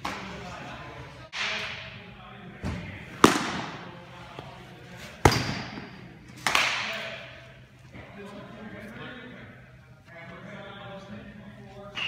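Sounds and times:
baseballs smacking into gloves: 0:02.7 - 0:03.8.

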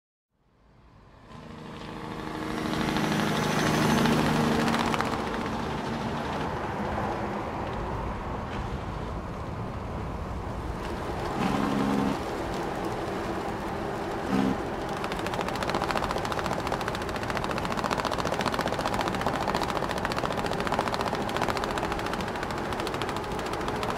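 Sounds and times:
truck engine and road noise: 0:00.3 - 0:23.9
straps rattling and flapping: 0:02.7 - 0:07.1, 0:10.6 - 0:23.9.

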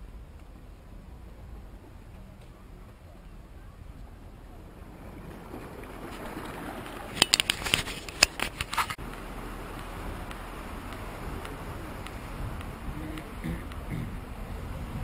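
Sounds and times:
low rumble of wind: 0:00.0 - 0:15.0
sharp clicks and knocks: 0:06.8 - 0:14.1.

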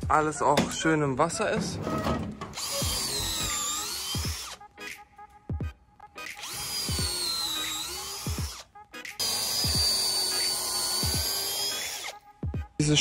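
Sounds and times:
cordless drill motor whine: 0:02.6 - 0:04.6, 0:06.4 - 0:08.6, 0:09.2 - 0:12.2.

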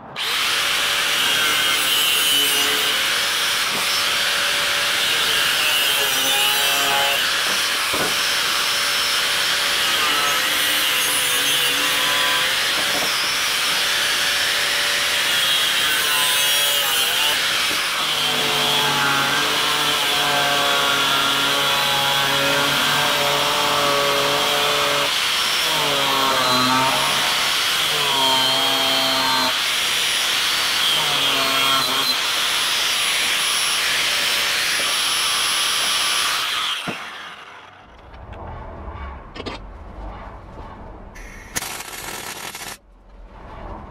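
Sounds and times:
angle grinder cutting metal: 0:00.2 - 0:37.8.

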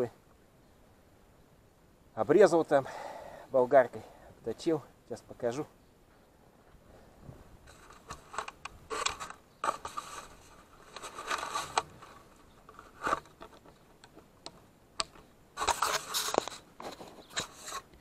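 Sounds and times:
camera handling rustle: 0:07.7 - 0:18.0.

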